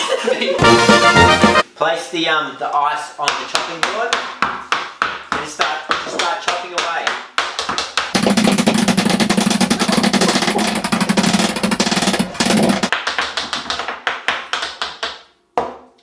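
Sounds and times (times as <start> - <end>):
knives chopping on plastic board: 3.8 - 15.8.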